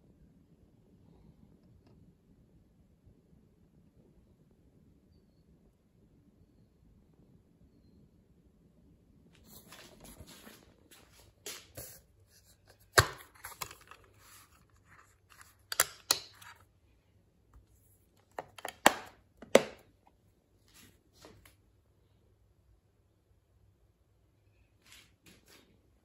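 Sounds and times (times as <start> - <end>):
plastic case rustling: 11.7 - 16.6, 18.2 - 19.8
plastic clicks and snaps: 15.3 - 16.6, 18.2 - 19.8.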